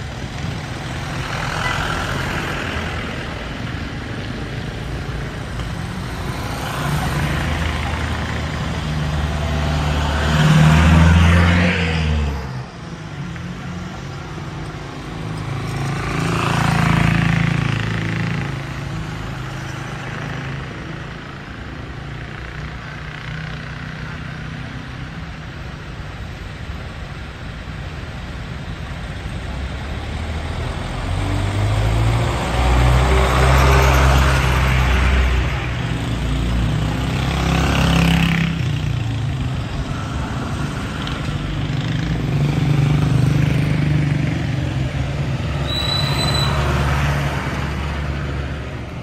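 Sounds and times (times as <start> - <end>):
idling traffic: 0.0 - 11.6, 12.4 - 49.0
high squeal: 45.5 - 46.9.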